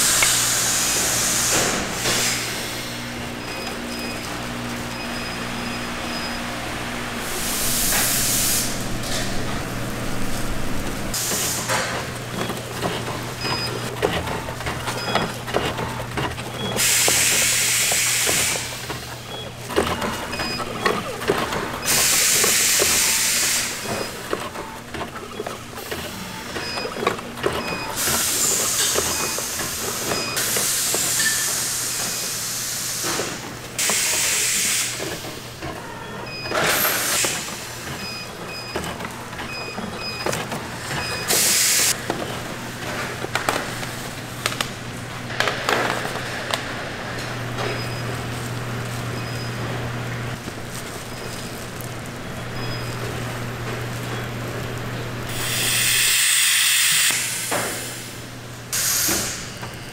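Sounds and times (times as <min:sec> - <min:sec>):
machine humming: 0:00.0 - 0:59.9
sharp hissing bursts: 0:07.2 - 0:11.9, 0:55.3 - 0:58.0.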